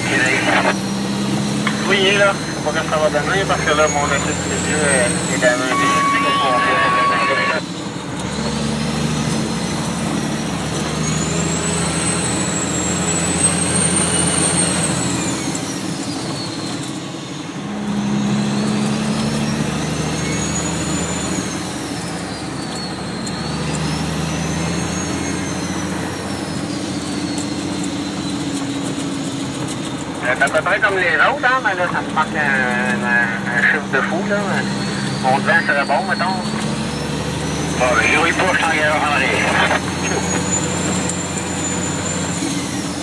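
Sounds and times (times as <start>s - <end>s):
high whine: 0.0s - 0.8s, 1.6s - 7.7s, 30.2s - 36.6s, 37.8s - 41.0s
truck engine running: 0.0s - 43.0s.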